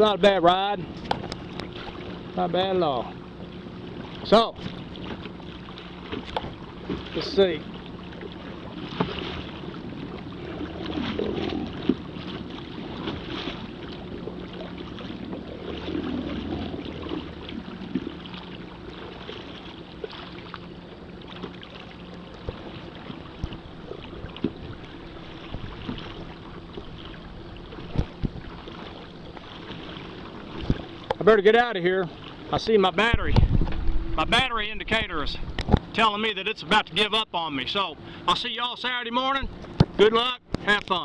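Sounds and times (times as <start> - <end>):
paddle knocking kayak hull: 0.0 - 36.3, 37.0 - 41.0
paddle strokes splashing water: 0.0 - 41.0
wind on microphone: 27.7 - 28.6, 33.1 - 35.9.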